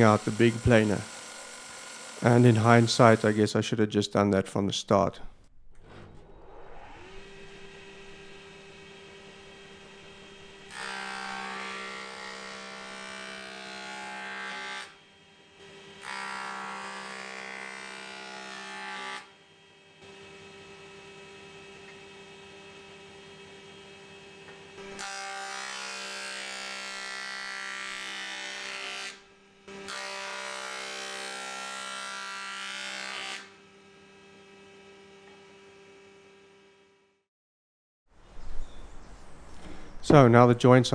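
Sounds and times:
wood planer cutting: 0.0 - 3.6, 6.7 - 36.9
planer machine humming: 7.0 - 14.7.

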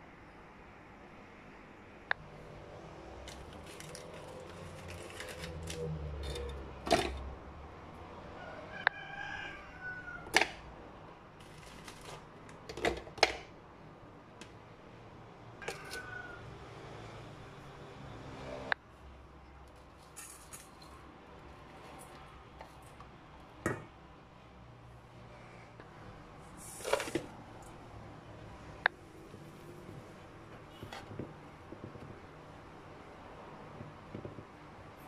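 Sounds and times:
packet rustling: 3.3 - 6.5
rooster crowing: 8.3 - 10.4, 15.6 - 17.2.

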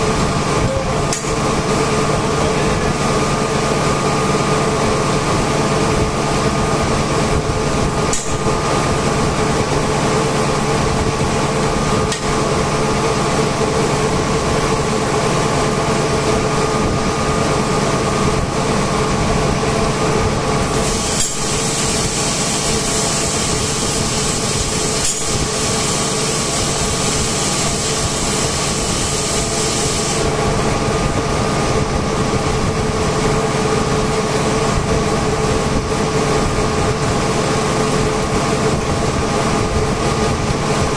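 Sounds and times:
air compressors humming: 0.0 - 40.9
high air hiss: 20.8 - 30.3.

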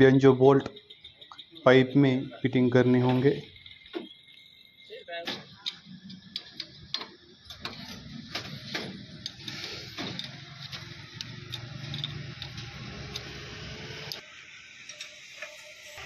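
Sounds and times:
spanner clicking on metal fitting: 9.2 - 14.2.

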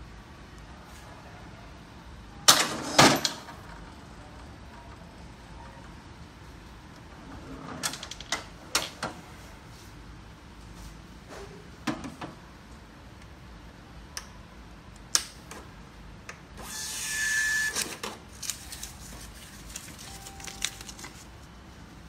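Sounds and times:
brief high tone: 20.0 - 21.4.

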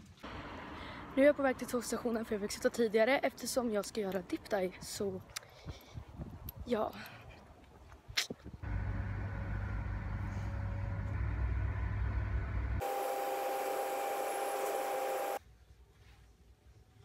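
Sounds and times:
train low rumble: 8.6 - 12.8
whining tones: 8.6 - 15.4.

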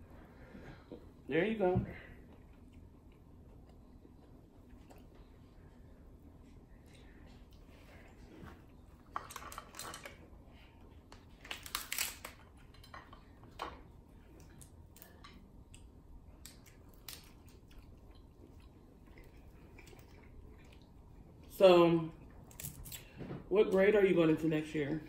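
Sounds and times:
shells cracking and snapping: 11.1 - 12.9, 14.4 - 17.9, 22.5 - 23.1.

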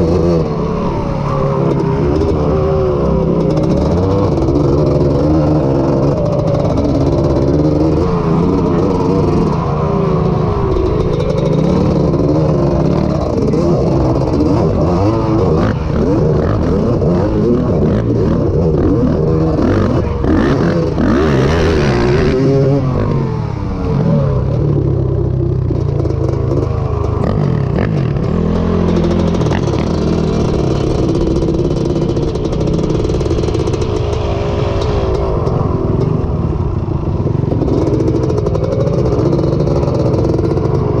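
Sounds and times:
rush of noise: 0.0 - 41.0
two-stroke engine running: 1.7 - 35.4, 36.4 - 41.0.

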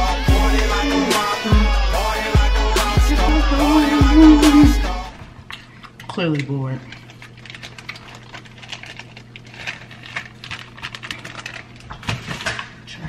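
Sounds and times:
plastic bag crinkling: 6.9 - 12.7.

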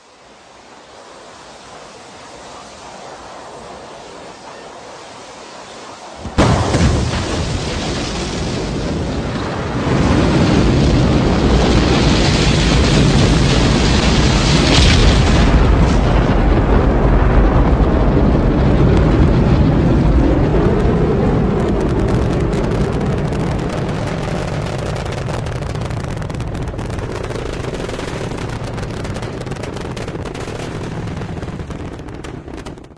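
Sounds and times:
rocket engine deep rumble: 5.7 - 32.9
dense crackling: 6.2 - 32.9.

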